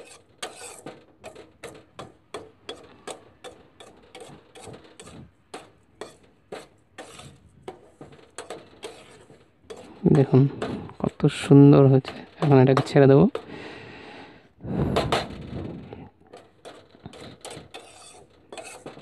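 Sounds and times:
metal utensil scraping a pan: 0.0s - 13.6s, 15.0s - 19.0s.

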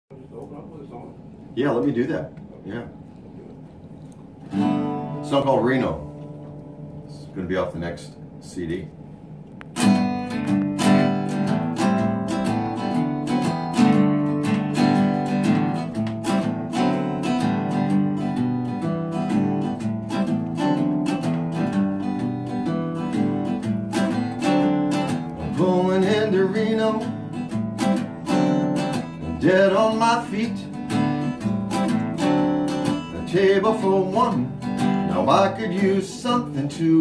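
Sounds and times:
acoustic guitar strumming: 4.4s - 7.5s, 9.8s - 37.0s.

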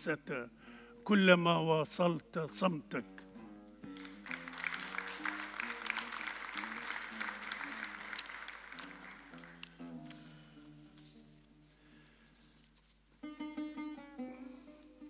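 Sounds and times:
soft plucked-string music: 1.0s - 6.1s, 8.8s - 15.0s
audience clapping: 3.9s - 10.2s.

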